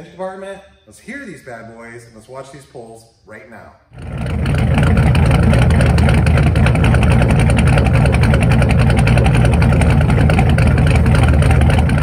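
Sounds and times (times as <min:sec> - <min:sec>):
car engine idling loud: 0:03.9 - 0:12.0.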